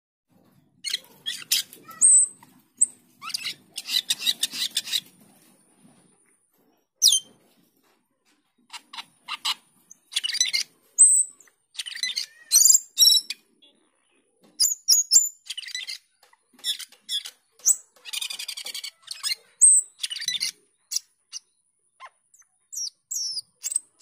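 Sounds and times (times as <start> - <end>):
starling singing: 0.8 - 5.1, 8.7 - 13.4, 14.6 - 24.0.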